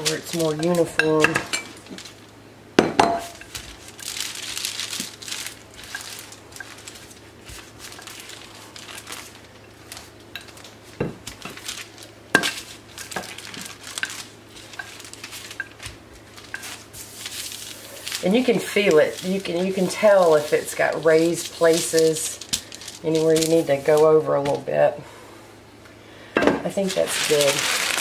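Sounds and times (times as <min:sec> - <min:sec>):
parchment paper rustling: 0:00.0 - 0:02.3, 0:03.2 - 0:25.0, 0:26.7 - 0:28.0
rolling pin on dough: 0:12.4 - 0:24.7.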